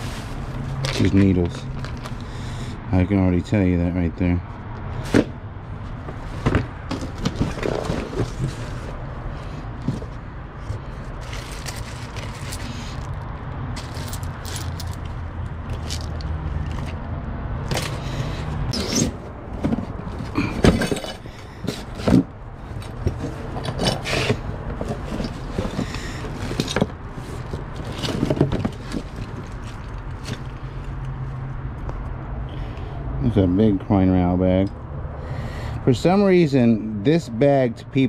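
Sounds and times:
small items rummaged scraping: 0.0 - 2.4, 5.0 - 17.0, 17.6 - 31.0.

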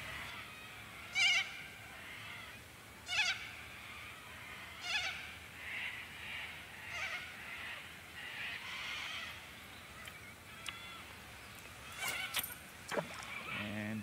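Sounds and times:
soft animal calling: 0.0 - 11.2, 11.8 - 14.0
animal crying: 11.8 - 13.8.

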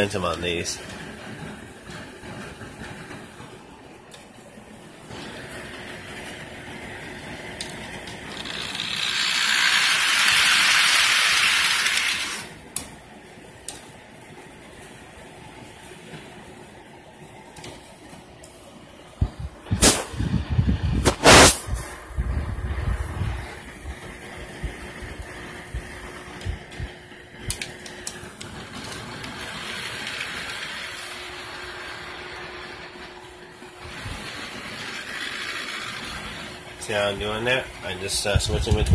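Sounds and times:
model train wheels rattling: 5.1 - 12.6, 24.1 - 38.9.

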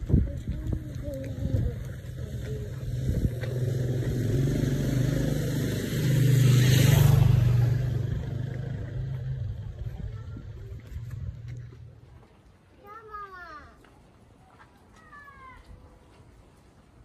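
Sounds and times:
motorcycle engine passing: 1.0 - 12.0.

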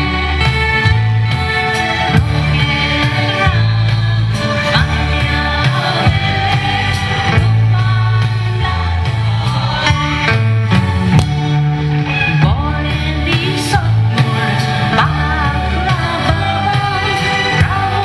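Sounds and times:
instrumental accompaniment: 0.0 - 18.0
choir singing: 2.0 - 10.9.

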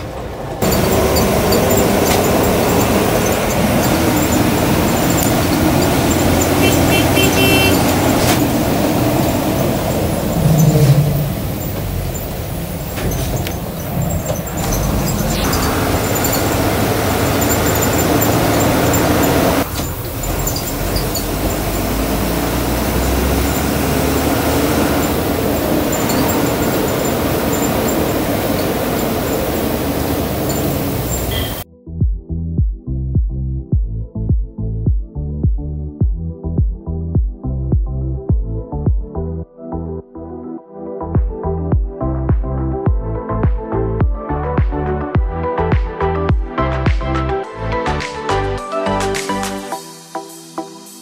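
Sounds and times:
bus engine rumble: 0.0 - 31.6
hiss of tyres and rain: 0.0 - 31.6
short high beeps: 5.2 - 7.9, 31.2 - 31.6.

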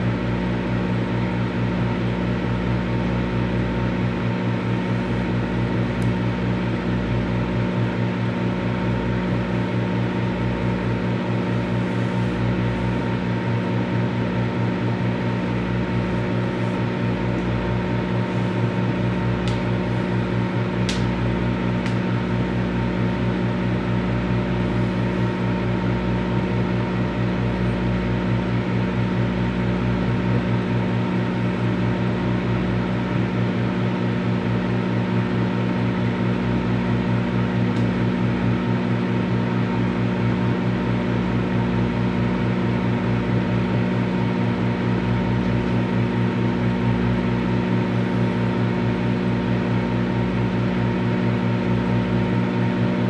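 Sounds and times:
microwave oven humming: 0.0 - 53.0.

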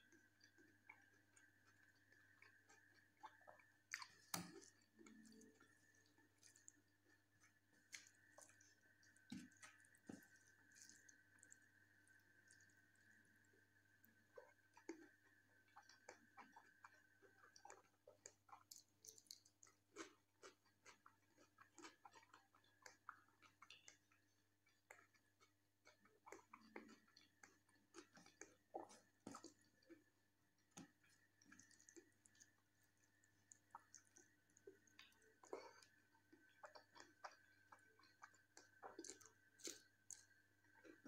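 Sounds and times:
close chewing mouth clicks: 14.4 - 30.1, 30.8 - 41.0.

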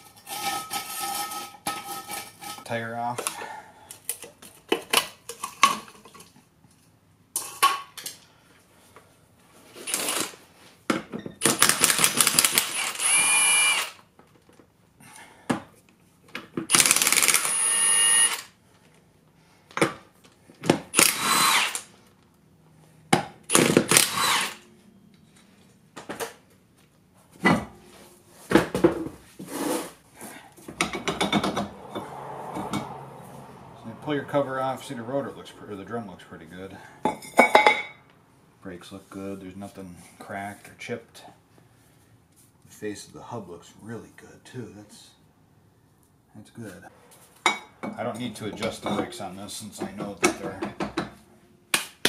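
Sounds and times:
impact wrench bursts: 9.8 - 10.4, 11.4 - 14.0, 16.7 - 18.6, 20.8 - 22.0, 23.4 - 24.6
metal knocks and clanks: 30.6 - 33.0.

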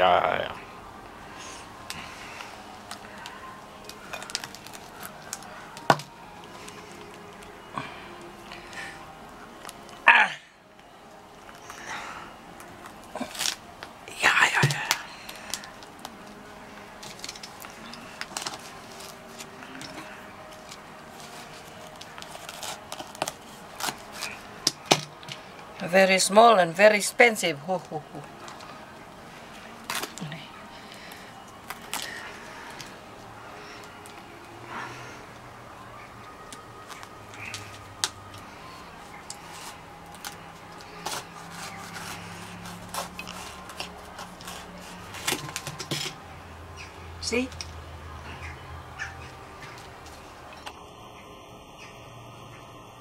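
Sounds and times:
rind scraping and cracking: 1.9 - 8.8, 12.6 - 25.7, 29.8 - 33.0, 36.4 - 46.3
husk cracking and clicking: 2.8 - 7.5
knife cutting spiky husk: 17.0 - 25.1, 39.5 - 45.7.

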